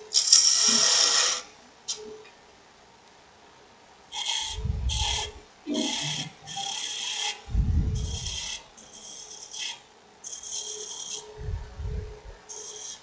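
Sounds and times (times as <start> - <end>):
low rumbles: 4.5 - 5.4, 7.5 - 8.4, 11.4 - 12.4.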